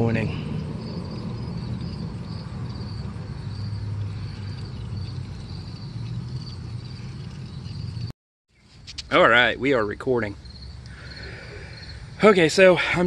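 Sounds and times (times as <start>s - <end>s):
steady low hum: 0.0s - 8.1s
insects chirping: 0.0s - 13.0s.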